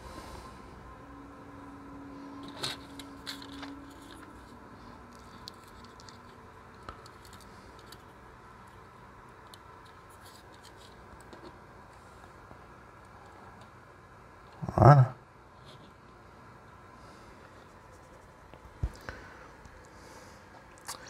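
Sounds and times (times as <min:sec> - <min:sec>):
plastic model clicks and scratches: 0:02.4 - 0:11.6.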